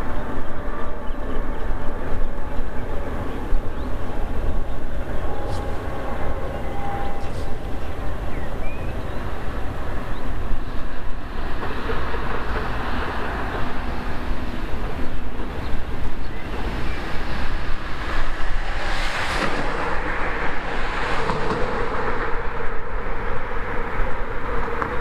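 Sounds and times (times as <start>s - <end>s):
train wheels clattering on rail: 10.4s - 23.8s.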